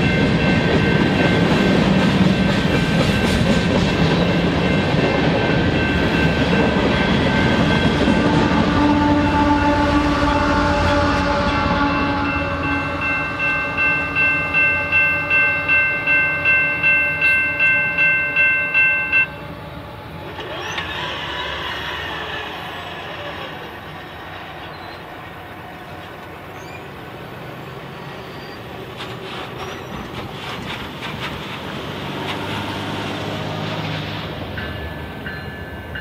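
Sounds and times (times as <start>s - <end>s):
railroad crossing bell ringing: 0.0s - 9.6s, 10.4s - 19.7s, 34.3s - 36.0s
departing train rumble: 0.0s - 36.0s.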